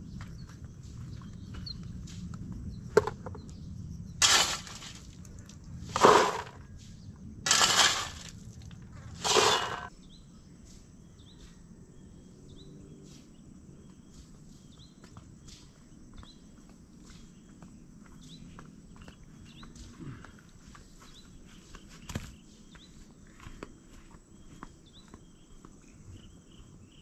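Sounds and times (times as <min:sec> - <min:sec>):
gravel rattling into a bucket: 0:04.2 - 0:06.6, 0:07.5 - 0:09.9.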